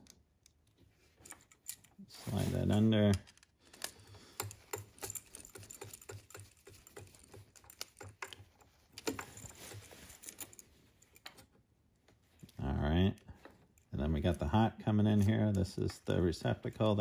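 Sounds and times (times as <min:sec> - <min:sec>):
screwdriver clicking on screw: 0:03.8 - 0:08.4.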